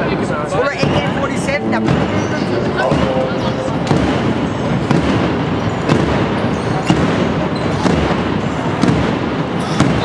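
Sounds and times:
crowd murmur: 0.0 - 10.0
basketball bouncing on floor: 3.8 - 10.0.

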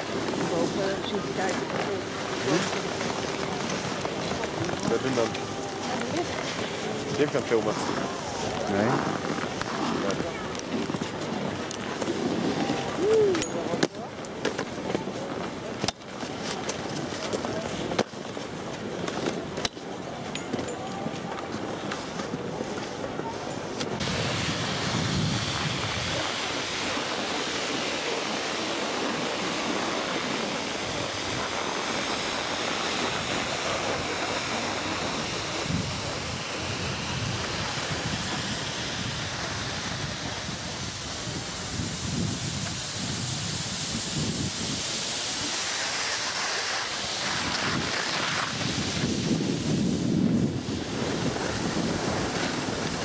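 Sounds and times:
snow hissing under skis: 0.0 - 13.4, 21.9 - 53.0
wind buffeting microphone: 16.8 - 53.0.

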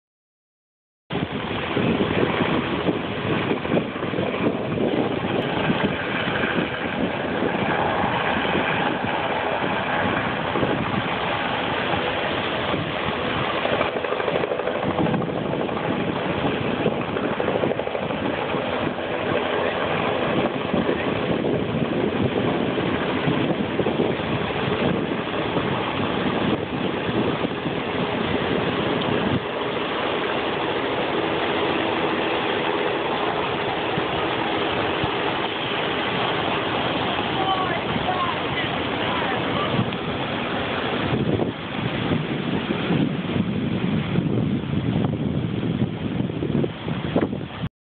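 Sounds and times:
helicopter rotor drone: 1.1 - 47.7
surf breaking on rocks: 15.1 - 45.0.

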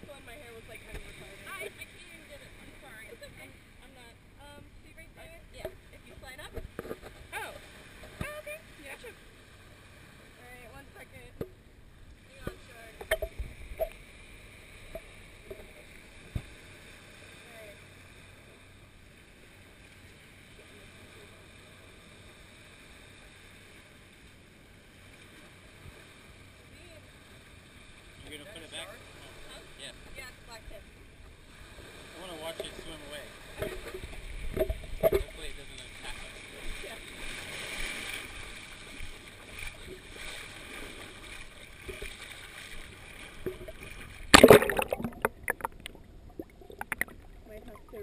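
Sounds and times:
small waves washing on shore: 0.0 - 48.0
water lapping around wading person: 5.5 - 48.0
small water splashes: 31.4 - 48.0.

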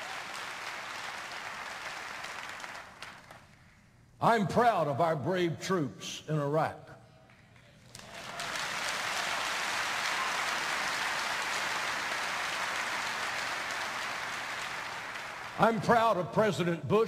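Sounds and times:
congregation applauding: 0.0 - 3.8, 7.8 - 16.3.

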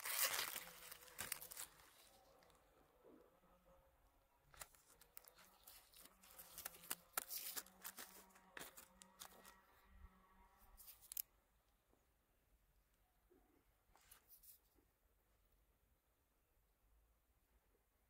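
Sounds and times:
plastic wrap and paper crinkling: 0.0 - 2.6, 4.5 - 9.6.

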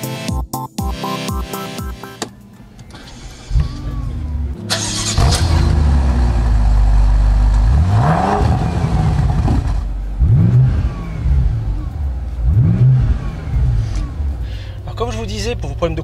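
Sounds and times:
car engine idling and revving: 2.2 - 16.0.

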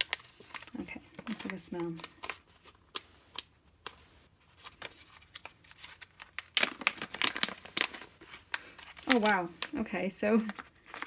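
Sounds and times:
foil crinkling: 0.0 - 3.5, 4.5 - 11.0
foil pouch crackling: 4.6 - 11.0.

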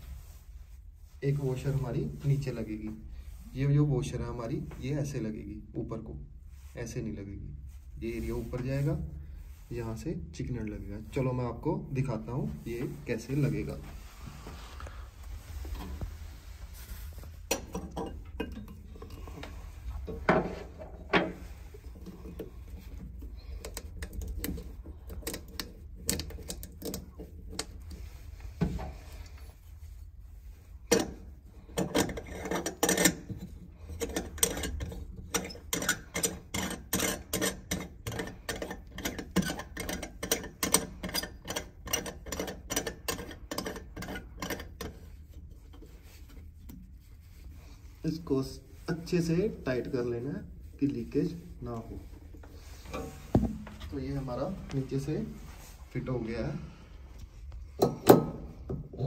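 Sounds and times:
metal fittings clinking: 17.2 - 28.0.

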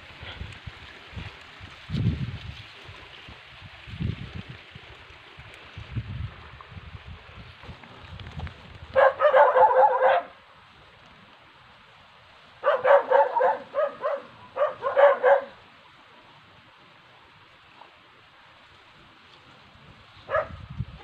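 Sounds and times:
animal yelping calls: 9.0 - 10.3, 12.6 - 15.6.

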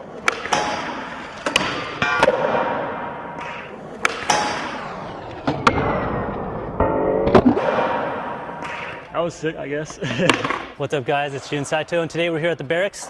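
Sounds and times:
skateboard clacks: 0.0 - 5.9, 10.2 - 10.8
skateboard wheels rolling on concrete: 0.0 - 6.8.

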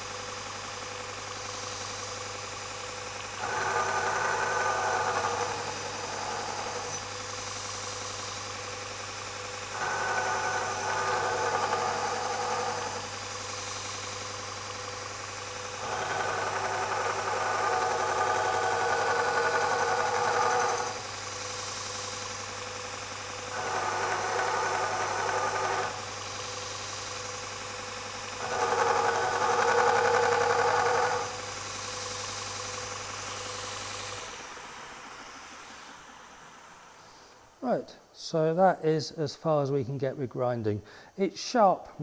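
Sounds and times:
belt grinder humming: 2.4 - 7.4, 9.4 - 31.6.

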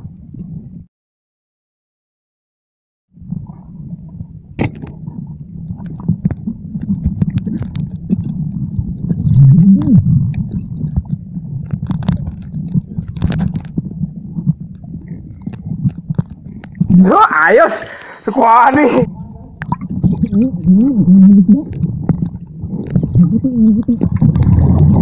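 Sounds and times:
muffled underwater water rumble: 0.0 - 0.9, 3.1 - 25.0.

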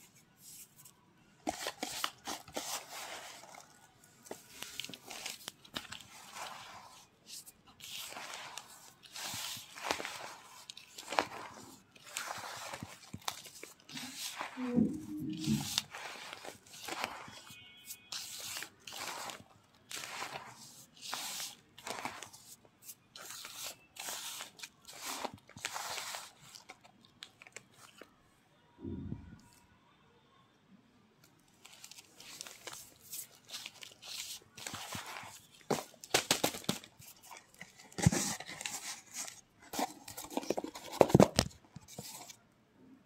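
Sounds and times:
gritty crunch of squeezed powder: 1.5 - 7.1, 7.8 - 28.0, 31.6 - 38.1.

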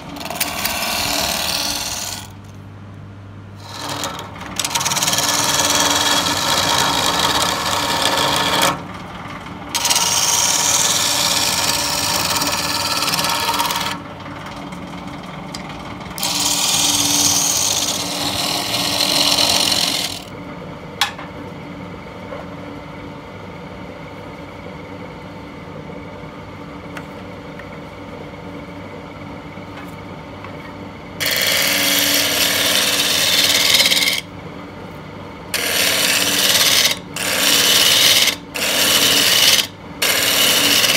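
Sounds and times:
turning tool scraping wood: 0.0 - 2.4, 3.6 - 8.8, 9.7 - 14.9, 16.1 - 20.3, 31.2 - 34.3, 35.6 - 40.9
wood lathe humming: 0.0 - 2.4, 3.6 - 8.8, 9.7 - 20.3, 31.2 - 34.3, 35.5 - 40.9.

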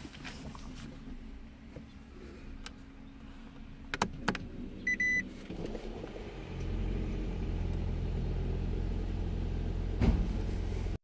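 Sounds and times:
car engine humming: 0.0 - 11.0
short beep: 4.9 - 5.2.

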